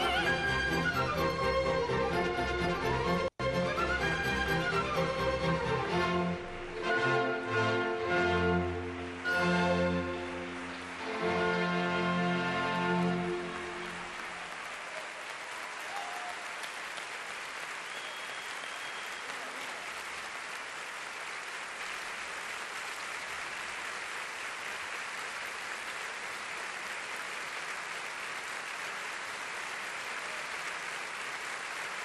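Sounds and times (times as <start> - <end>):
large audience applauding: 0.0 - 6.4, 8.0 - 32.0.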